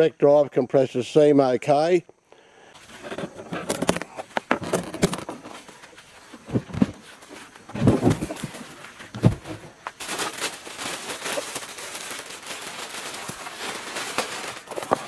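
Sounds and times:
plastic bag crinkling: 0:07.5 - 0:15.0.

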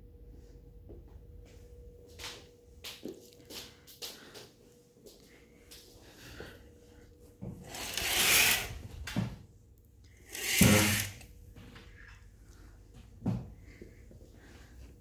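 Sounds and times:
curtain runners sliding on track: 0:07.6 - 0:08.8, 0:10.2 - 0:11.2.

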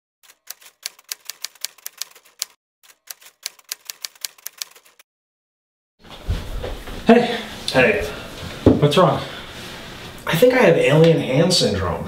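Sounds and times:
typewriter keys clacking: 0:00.2 - 0:05.0.

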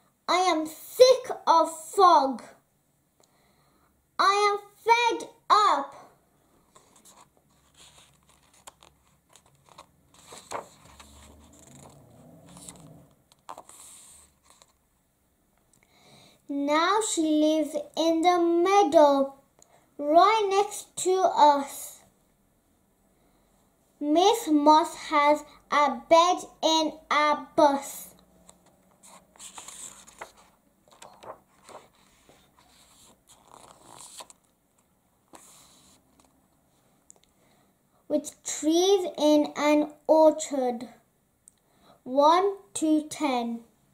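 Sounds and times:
book page turning: 0:06.7 - 0:14.8, 0:28.5 - 0:36.4.

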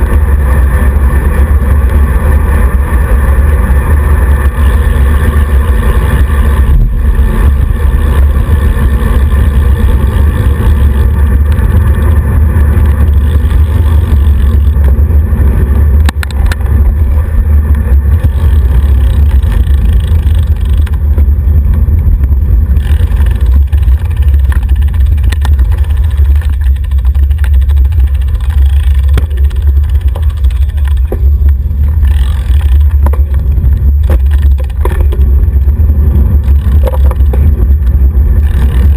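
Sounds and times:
wind buffeting microphone: 0:00.0 - 0:38.9
knocks from road vibration: 0:23.0 - 0:38.9.

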